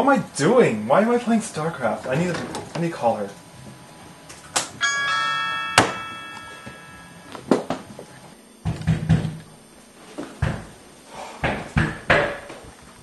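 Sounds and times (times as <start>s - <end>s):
two-note doorbell chime: 4.8s - 7.4s.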